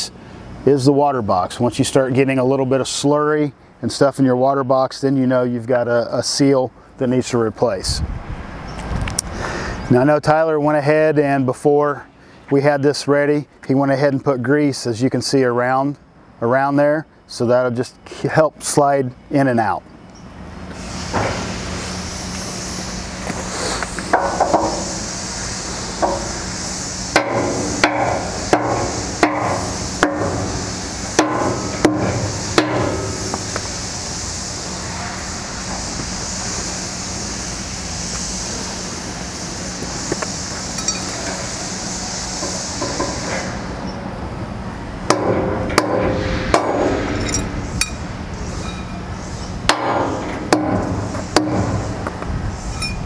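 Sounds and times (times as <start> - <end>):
mallet knocking on metal: 27.2 - 30.4, 31.2 - 33.1, 45.1 - 47.0, 49.7 - 51.8
metal parts clinking: 40.8 - 41.2, 47.2 - 48.0, 48.6 - 49.0.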